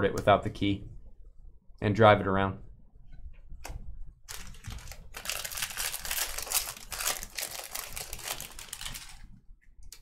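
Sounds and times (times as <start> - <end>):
trading cards crinkling and clicking: 4.3 - 9.3.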